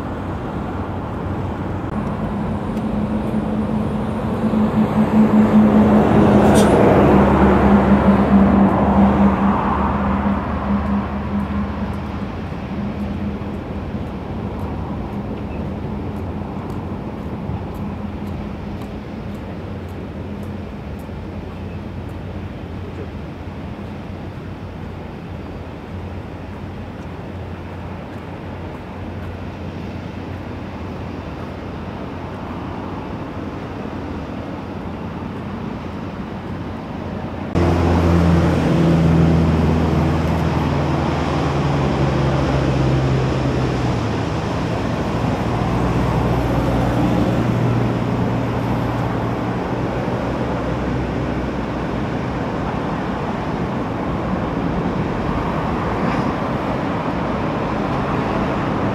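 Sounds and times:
engine rumble: 0.0 - 58.9
deep hum: 1.9 - 18.2.

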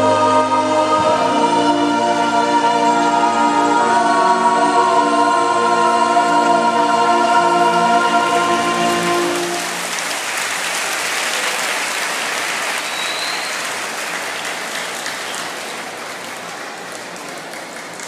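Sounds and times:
recorded choral music: 0.0 - 17.6
crowd applauding: 8.2 - 18.0.

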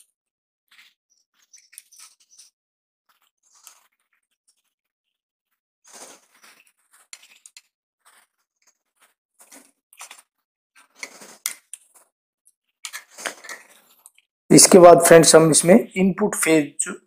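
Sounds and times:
hands rustling electrical wire: 5.8 - 14.3.

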